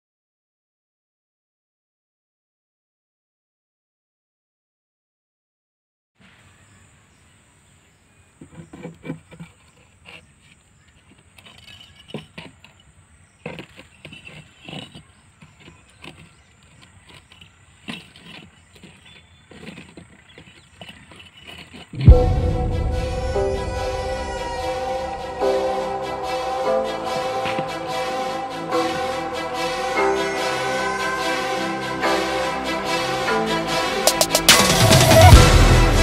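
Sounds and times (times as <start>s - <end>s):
bottle and bricks handled: 8.4s - 22.0s
loud music: 22.0s - 36.0s.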